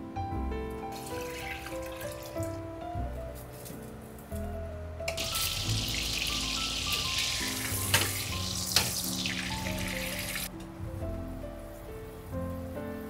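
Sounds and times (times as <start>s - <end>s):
soft background music: 0.0s - 13.0s
butter sizzling in a frying pan: 5.2s - 10.5s.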